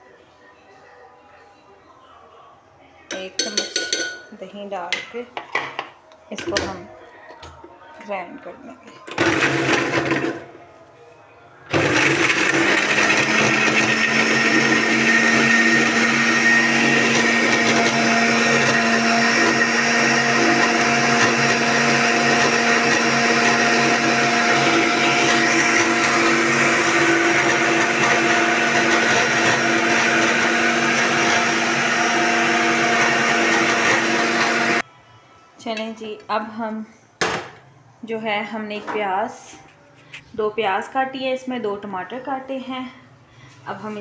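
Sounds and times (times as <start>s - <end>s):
blender motor grinding: 9.2s - 10.4s, 11.7s - 34.8s.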